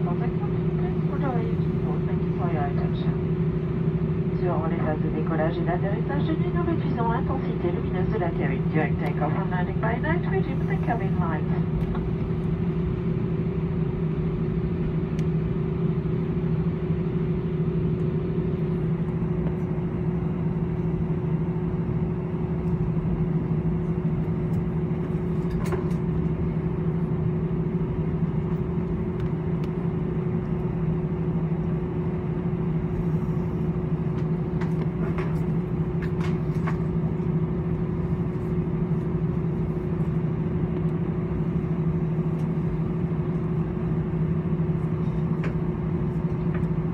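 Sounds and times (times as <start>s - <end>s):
aircraft cabin engine drone: 0.0s - 46.9s.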